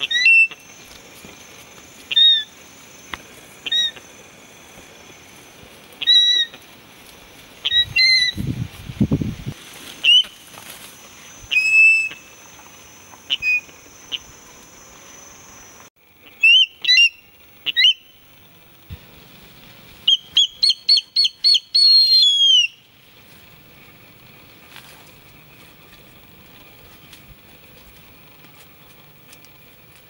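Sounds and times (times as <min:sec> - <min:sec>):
young eagle shrill calls: 0:06.0 - 0:06.5, 0:16.4 - 0:18.1, 0:20.1 - 0:22.8.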